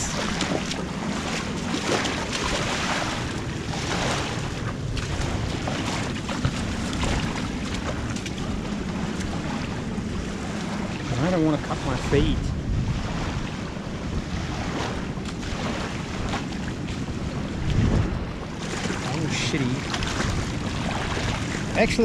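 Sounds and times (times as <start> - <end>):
small waves lapping: 0.0 - 22.0
wind rumbling on microphone: 0.0 - 22.0.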